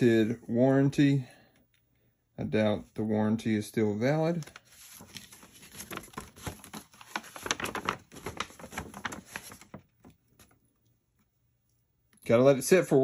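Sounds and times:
paper rustling and crinkling: 0:04.3 - 0:10.6.

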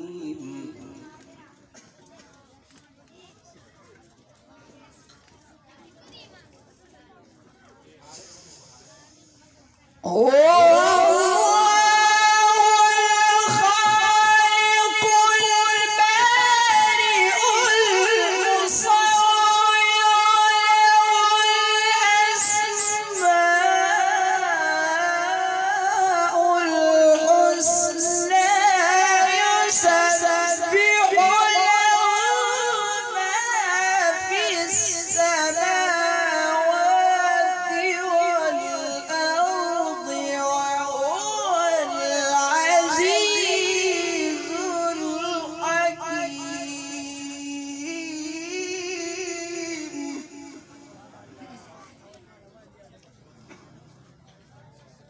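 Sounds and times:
man chanting melodic recitation: 0:10.1 - 0:50.9.

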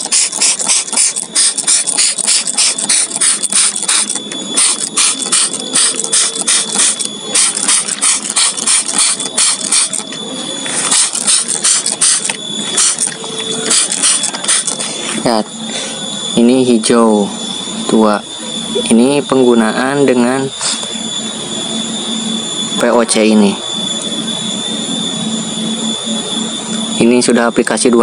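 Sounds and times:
trigger sprayer hissing sprays: 0:00.0 - 0:15.9.

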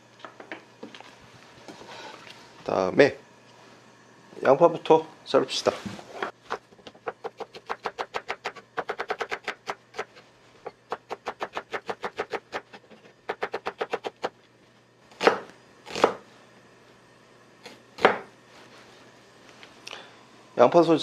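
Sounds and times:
knife slicing onion on wooden board: 0:06.2 - 0:14.4, 0:15.2 - 0:16.2, 0:17.6 - 0:18.3.

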